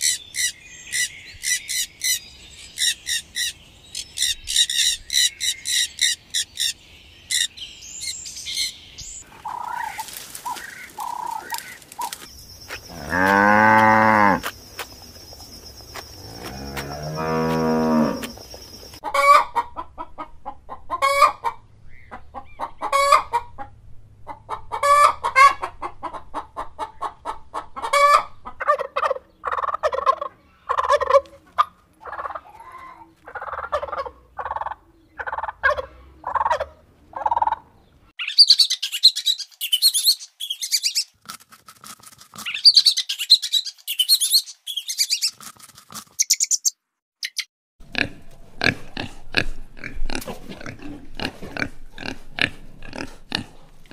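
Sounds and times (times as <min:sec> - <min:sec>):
hens clucking: 0:09.2 - 0:12.3, 0:16.7 - 0:37.7
cattle mooing: 0:12.9 - 0:14.5, 0:16.2 - 0:18.3.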